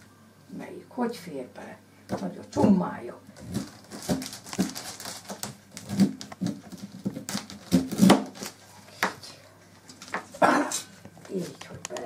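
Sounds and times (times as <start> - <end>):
paper crackling: 3.4 - 9.0.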